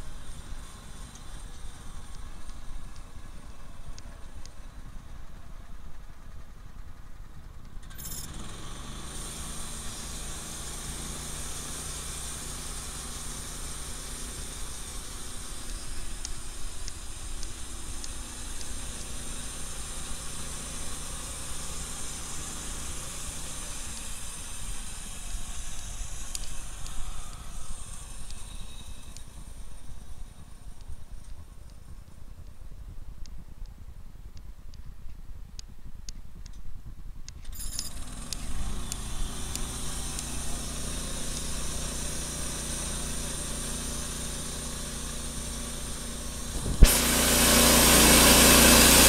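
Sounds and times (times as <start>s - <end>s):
sawmill engine revving: 0.0s - 30.9s, 37.8s - 49.0s
band blade cutting log hiss: 8.4s - 30.1s, 38.0s - 49.0s.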